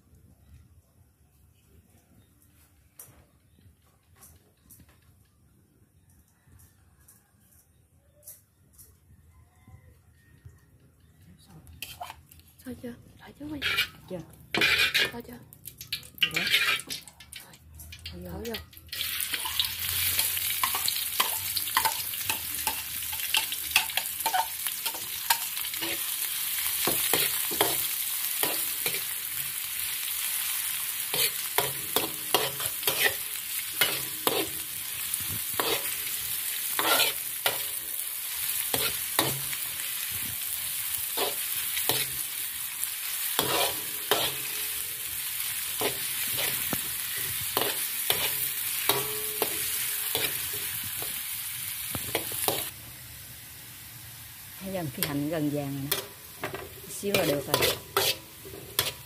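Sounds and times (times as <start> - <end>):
shallots sizzling in oil: 11.1 - 59.0
spatula scraping and tapping pan: 11.8 - 12.4, 13.4 - 26.1, 26.8 - 29.2, 31.1 - 38.0, 38.7 - 40.2, 41.1 - 42.3, 43.4 - 44.9, 45.7 - 51.2, 51.9 - 52.7, 55.0 - 59.0.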